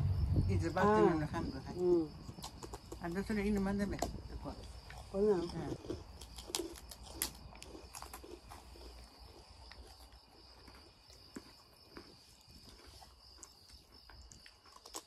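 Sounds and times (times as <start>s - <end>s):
crackers being bitten: 2.3s - 3.0s, 4.7s - 15.0s.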